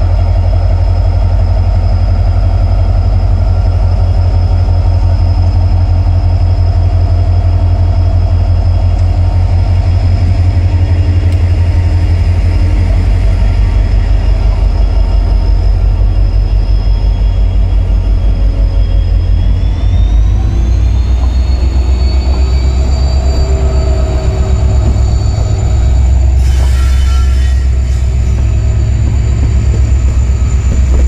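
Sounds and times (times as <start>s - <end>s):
diesel locomotive engine running: 0.0s - 31.0s.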